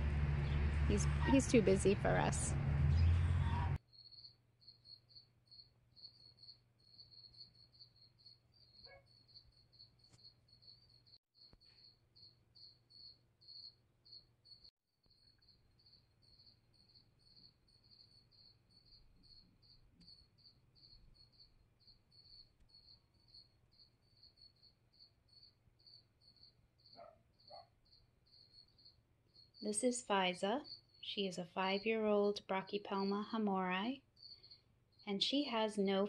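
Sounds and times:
cricket chirping: 0:03.9 - 0:29.9, 0:30.6 - 0:31.1, 0:34.1 - 0:35.0.

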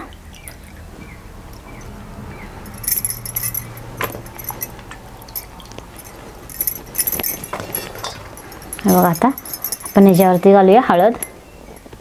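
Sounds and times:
glass bangles jingling: 0:02.6 - 0:12.0.

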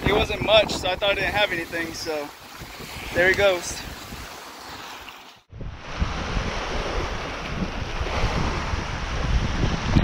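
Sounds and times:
wind buffeting microphone: 0:00.0 - 0:04.4, 0:05.5 - 0:10.0
small waves washing over rocks: 0:01.3 - 0:05.4.

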